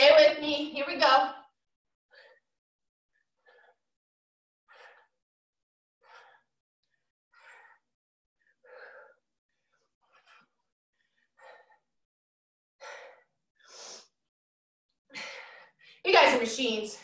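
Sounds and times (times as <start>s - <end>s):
heavy breathing during workout: 2.1s - 4.0s, 4.6s - 5.2s, 6.0s - 12.1s, 12.8s - 14.3s, 15.1s - 16.3s.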